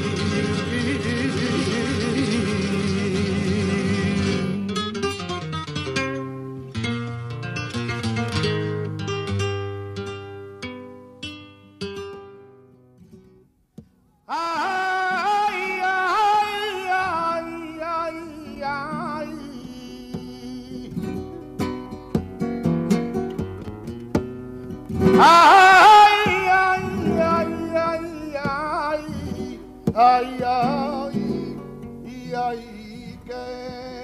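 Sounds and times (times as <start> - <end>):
plucked acoustic guitar: 0.0 - 34.0
person singing long wavering notes: 25.2 - 34.0.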